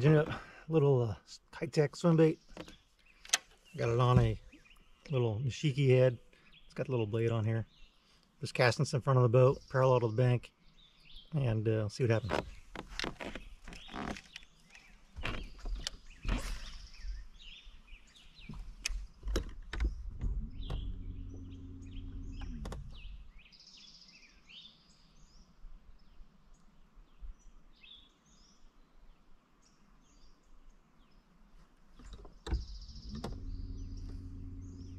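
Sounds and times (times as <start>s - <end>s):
small birds chirping: 0.0s - 34.9s
sharp knocks and clicks: 18.5s - 21.4s, 22.3s - 23.1s, 32.0s - 34.2s
electric trolling motor humming: 20.2s - 22.8s, 32.9s - 34.9s.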